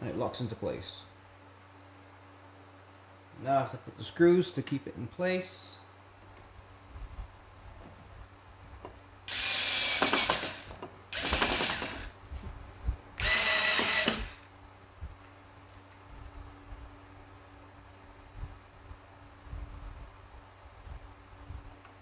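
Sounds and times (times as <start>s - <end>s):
electric screwdriver running: 9.3s - 12.1s, 13.2s - 14.4s.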